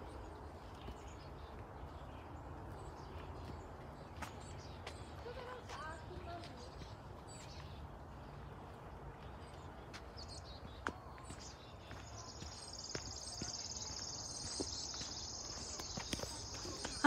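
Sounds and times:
footsteps on dirt path: 0.0s - 17.0s.

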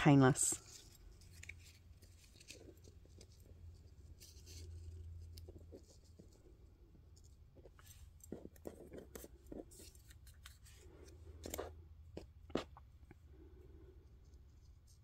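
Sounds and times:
paper and fabric rustling: 0.0s - 11.8s.

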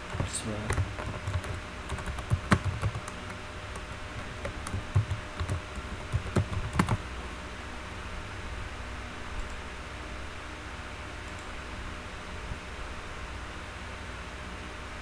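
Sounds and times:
keyboard typing: 0.0s - 7.0s.

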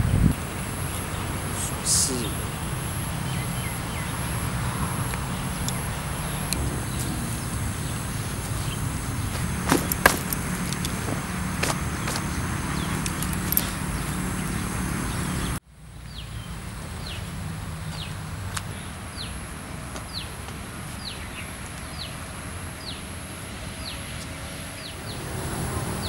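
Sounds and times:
low outdoor rumble: 0.0s - 15.6s
bird chirping: 0.8s - 17.3s.

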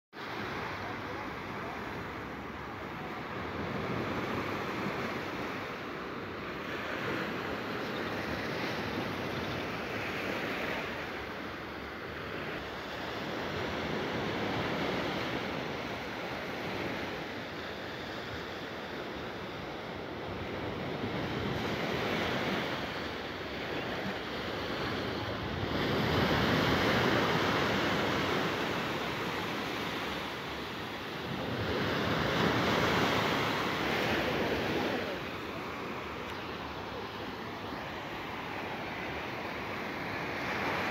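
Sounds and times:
small waves washing onto sand: 0.2s - 40.9s.

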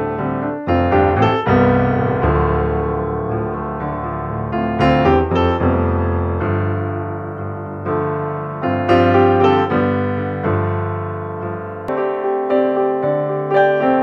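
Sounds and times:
piano music: 0.0s - 14.0s.

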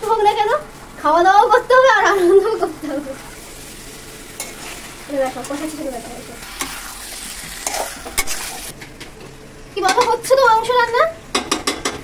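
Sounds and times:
meat sizzling in a pan: 0.1s - 8.8s.

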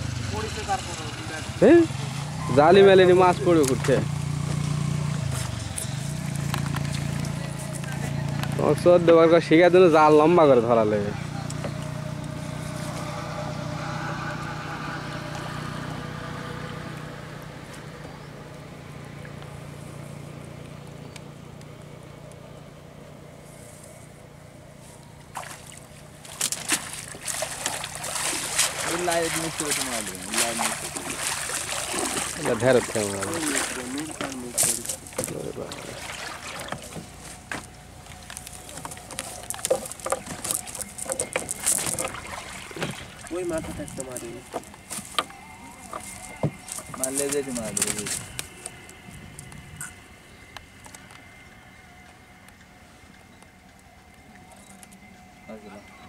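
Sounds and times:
low engine hum: 0.0s - 56.0s
clicks and knocks on bamboo: 6.4s - 8.6s, 36.7s - 42.2s, 44.5s - 47.0s
wet net rustling: 25.2s - 49.1s
faint higher tones: 36.7s - 56.0s.

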